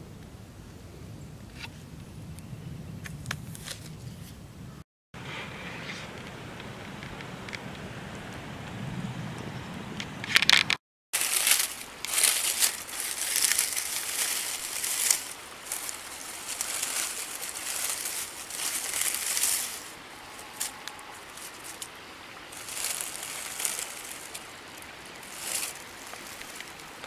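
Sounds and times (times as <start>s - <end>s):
hand brushing through dry leaves: 11.2s - 27.0s.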